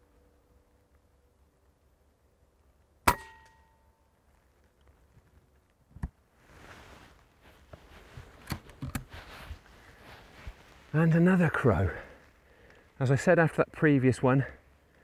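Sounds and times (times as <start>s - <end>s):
air rifle shot with metallic ring: 3.1s - 3.8s
soft rustling: 4.2s - 13.0s.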